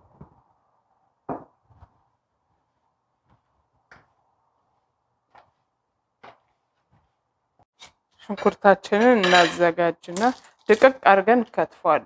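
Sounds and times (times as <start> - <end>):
kitchenware knock: 9.0 - 9.7.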